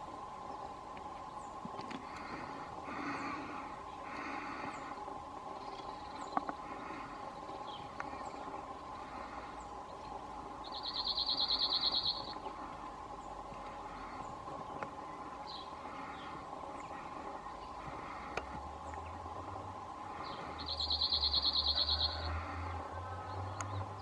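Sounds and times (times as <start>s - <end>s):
bird trilling song: 4.7s - 17.9s, 20.1s - 24.0s.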